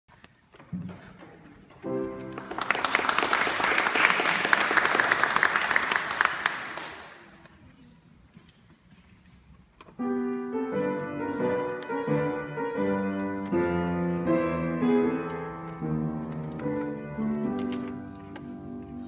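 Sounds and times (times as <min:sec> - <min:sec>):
audience applauding: 0:02.2 - 0:07.3.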